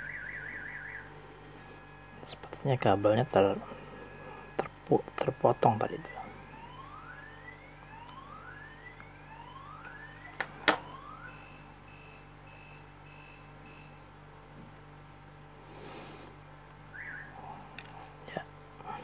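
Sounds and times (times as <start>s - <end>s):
faint car alarm: 0.0s - 14.2s, 16.9s - 17.7s.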